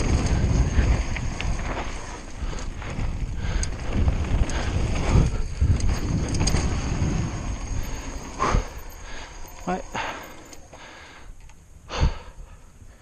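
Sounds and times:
wind rushing over microphone: 0.0 - 10.3
bike rattling and knocking: 0.0 - 10.9.

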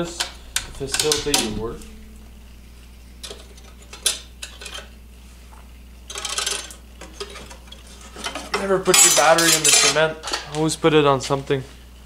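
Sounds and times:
metal rattle: 0.0 - 5.0.

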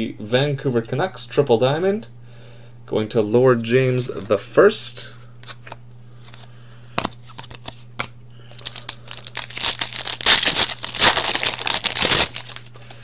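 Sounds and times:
foil wrapper crinkling: 8.5 - 13.0.

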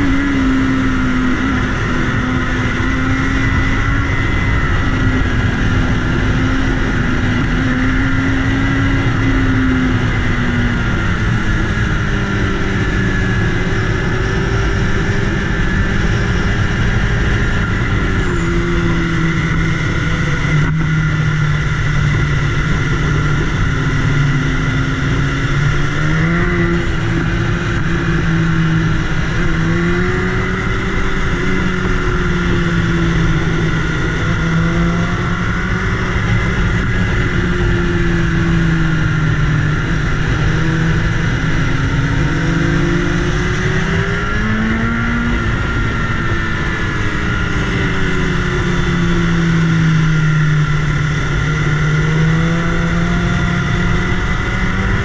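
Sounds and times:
motorcycle engine revving: 0.0 - 55.0
wind rush: 0.0 - 55.0.

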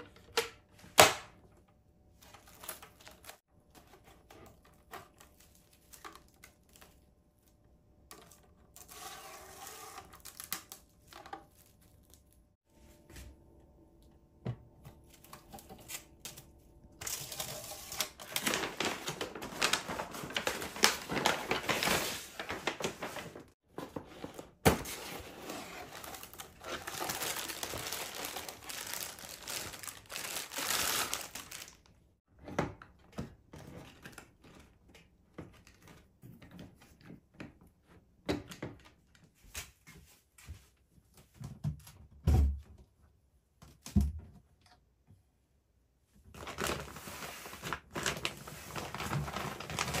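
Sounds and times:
crinkly packaging rustling: 2.2 - 7.5, 17.0 - 32.0, 46.3 - 50.0.

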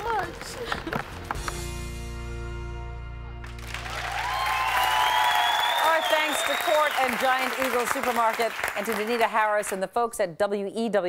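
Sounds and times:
sustained chord with deep bass: 1.5 - 4.0.

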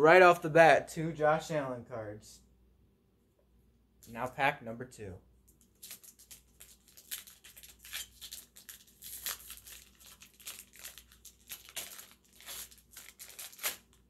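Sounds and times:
card pack wrapper crinkling and tearing: 5.6 - 14.0.

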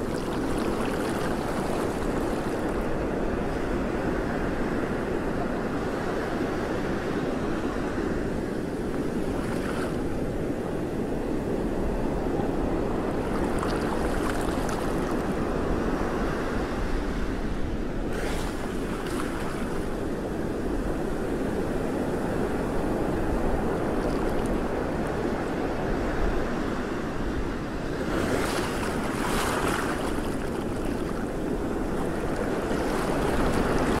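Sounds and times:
sea water lapping: 0.0 - 2.9, 13.0 - 15.5, 18.1 - 20.1, 23.4 - 25.3, 28.0 - 34.0
wind buffeting microphone: 0.0 - 34.0.

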